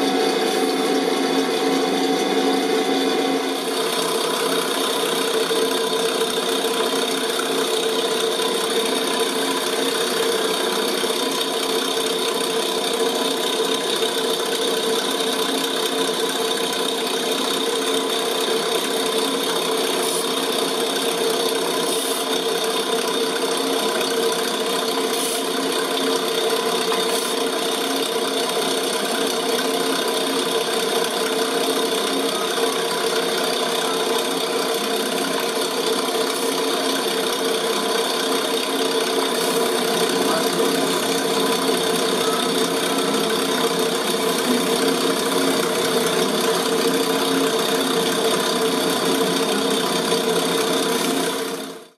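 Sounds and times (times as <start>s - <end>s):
faceting machine humming: 0.0s - 12.6s, 28.8s - 51.8s.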